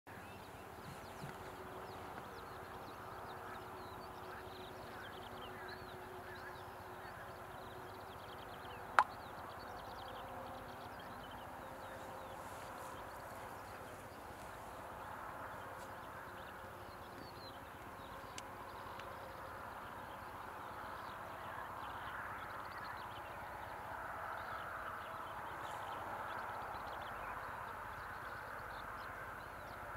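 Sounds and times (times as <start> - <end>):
small birds twittering: 0.1 - 23.7.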